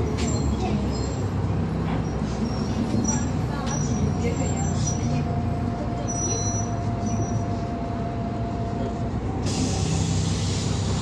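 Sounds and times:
bus engine drone: 0:00.0 - 0:11.0.

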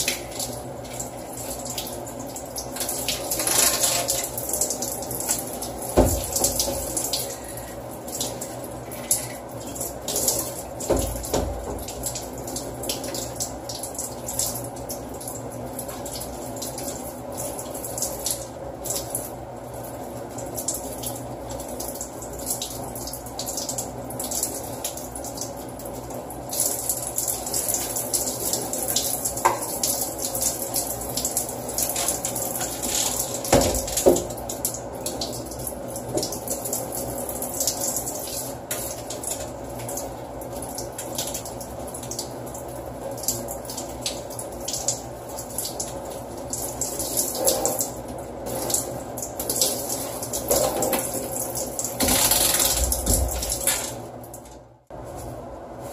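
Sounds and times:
shower head spraying water: 0:02.8 - 0:04.4.

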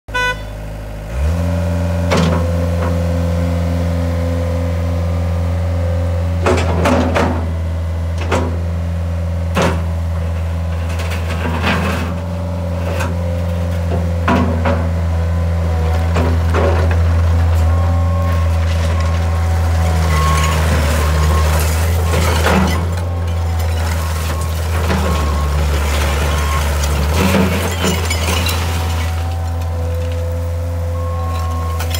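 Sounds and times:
diesel engine running: 0:00.1 - 0:31.9
metal clanks of loader bucket: 0:06.4 - 0:08.8, 0:09.5 - 0:15.1, 0:16.0 - 0:31.9.

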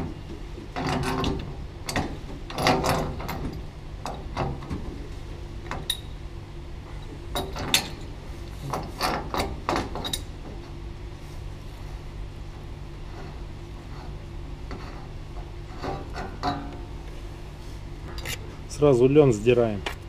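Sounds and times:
metal clanks: 0:00.0 - 0:05.0, 0:07.3 - 0:10.8, 0:13.1 - 0:17.1
steady low hum: 0:00.0 - 0:20.0
pipe wrench clicking and scraping: 0:13.1 - 0:16.9.

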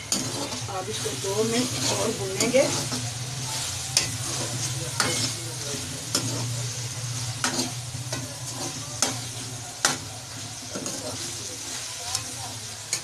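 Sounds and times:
food sizzling in a wok: 0:00.0 - 0:13.0
metal spoon scraping a pan: 0:00.0 - 0:13.0.

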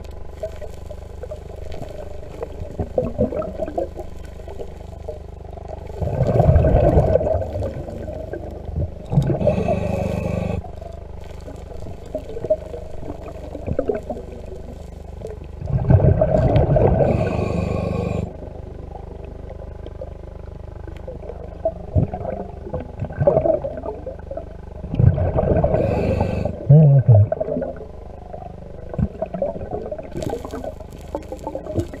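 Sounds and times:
underwater crackling: 0:00.0 - 0:32.0
water noise: 0:00.0 - 0:32.0
diver's exhaled breath bubbling: 0:01.4 - 0:18.6, 0:24.8 - 0:32.0.

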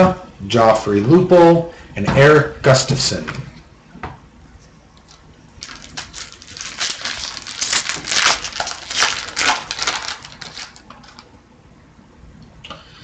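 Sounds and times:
plastic wrapper crinkling: 0:05.0 - 0:11.3.

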